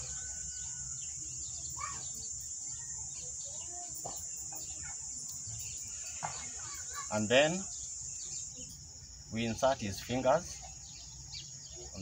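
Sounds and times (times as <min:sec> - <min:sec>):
faint bird chirps: 0:00.0 - 0:12.0
insect drone: 0:00.0 - 0:12.0.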